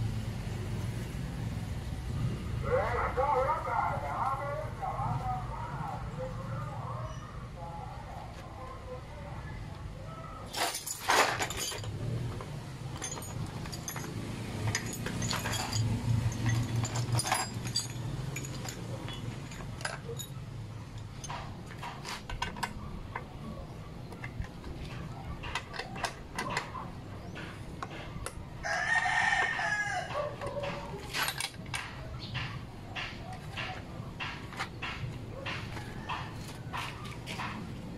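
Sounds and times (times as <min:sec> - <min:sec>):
clicks and knocks on metal plate: 0:24.1 - 0:28.4
rooster crowing: 0:28.6 - 0:30.9, 0:35.6 - 0:37.1.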